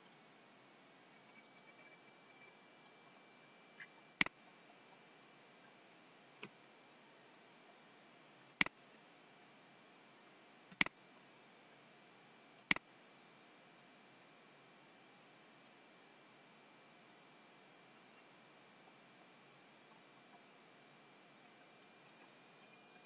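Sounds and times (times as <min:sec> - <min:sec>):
faint high-pitched whine and hiss: 0:00.0 - 0:23.0.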